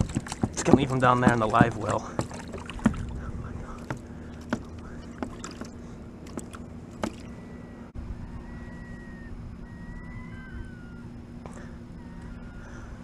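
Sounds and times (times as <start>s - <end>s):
steady low hum: 0.0s - 13.0s
thin drawn-out whistling tones: 7.2s - 11.2s.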